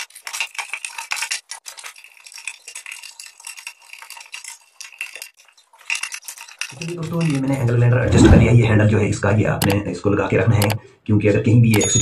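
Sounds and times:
metal parts clinking and rattling: 0.0 - 7.6.

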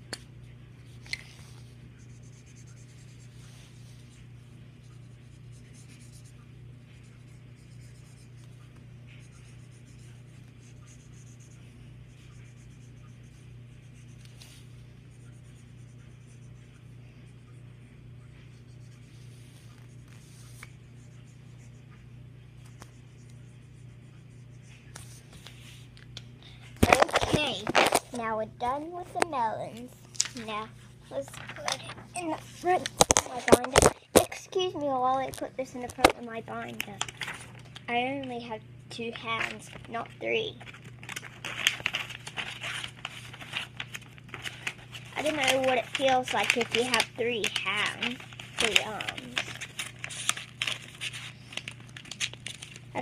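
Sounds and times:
marker scratching on paper: 1.2 - 17.5.

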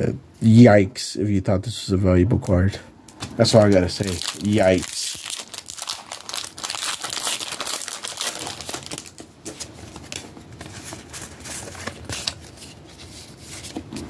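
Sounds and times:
foil wrapper crinkling: 3.6 - 9.3.

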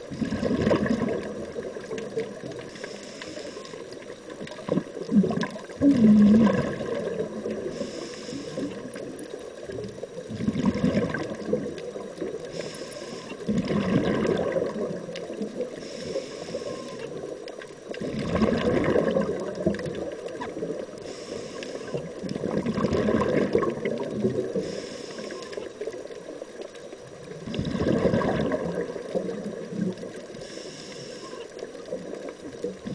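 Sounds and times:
bubbling exhalations: 0.1 - 2.5, 4.5 - 7.8, 10.3 - 11.8, 13.5 - 15.7, 18.0 - 20.1, 22.3 - 24.8, 27.4 - 30.2
diver breathing through regulator: 2.7 - 4.0, 7.6 - 9.0, 12.4 - 13.6, 15.7 - 17.2, 21.0 - 22.1, 24.5 - 25.8, 30.3 - 31.7.

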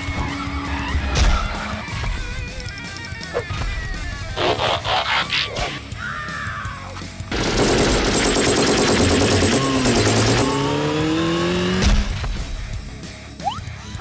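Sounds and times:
machine-gun fire: 7.3 - 10.8.

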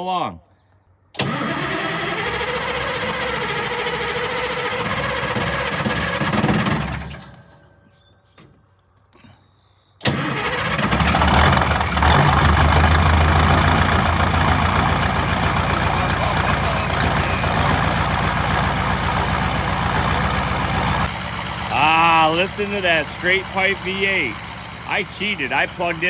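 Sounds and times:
starter motor whining and cranking: 1.2 - 7.5, 10.0 - 21.2
diesel engine running loudly: 1.2 - 7.6, 10.1 - 26.0.

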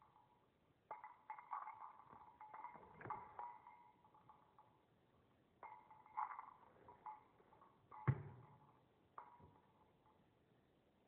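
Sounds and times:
toy knocks and bumps: 7.9 - 9.7.

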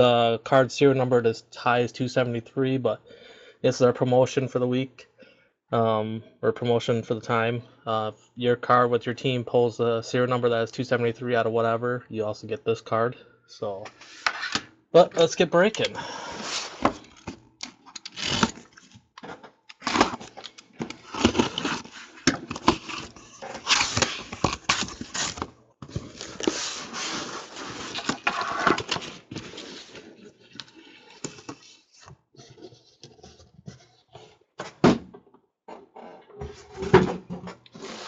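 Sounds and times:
cardboard scraping and rustling: 16.4 - 17.4, 18.0 - 19.0, 19.8 - 34.4, 36.5 - 38.0
knife slitting packing tape: 18.0 - 18.6.

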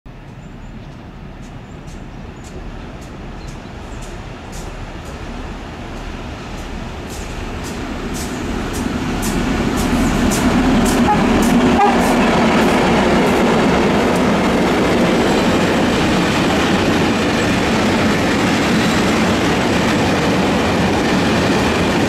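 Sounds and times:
diesel locomotives rumbling: 0.1 - 22.0.

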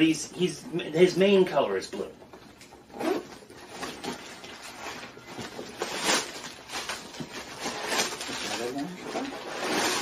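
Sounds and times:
backpack and tissue paper rustling: 2.9 - 10.0.

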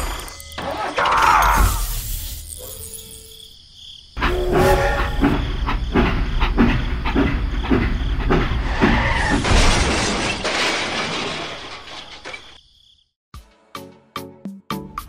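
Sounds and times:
steam train chuffing: 4.2 - 9.1.

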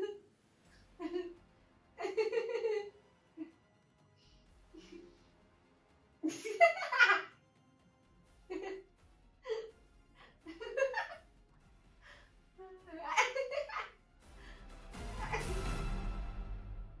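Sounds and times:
woman laughing: 0.0 - 0.2, 1.0 - 1.4, 2.0 - 3.6, 4.7 - 5.1, 6.2 - 7.3, 8.5 - 8.8, 9.5 - 9.7, 10.5 - 11.2, 12.7 - 14.0, 15.2 - 15.5.

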